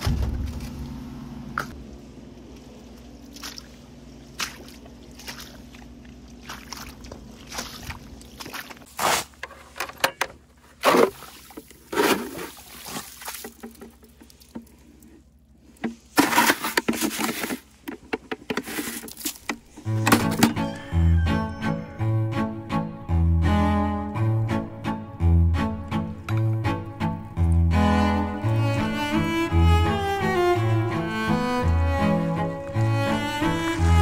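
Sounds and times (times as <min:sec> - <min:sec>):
low steady hum: 0:00.0 - 0:34.0
water sloshing in a plastic bucket: 0:03.2 - 0:09.4, 0:10.6 - 0:20.3.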